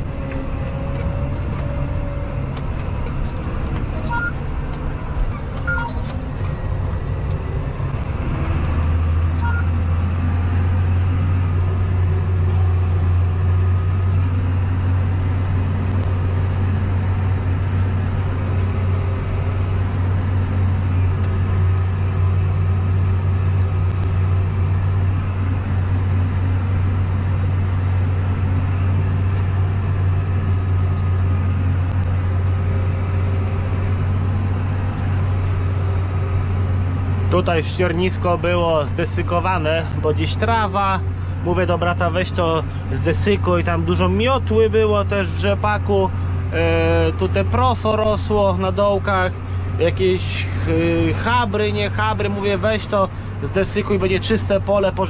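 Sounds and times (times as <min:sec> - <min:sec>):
tractor diesel engine drone: 0:00.0 - 0:55.0
short electronic beeps: 0:03.9 - 0:04.4, 0:05.6 - 0:06.1, 0:09.2 - 0:09.8.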